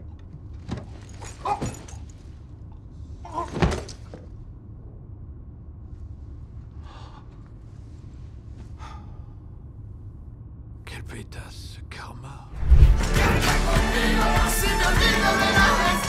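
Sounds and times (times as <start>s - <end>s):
low train rumble: 4.3s - 16.0s.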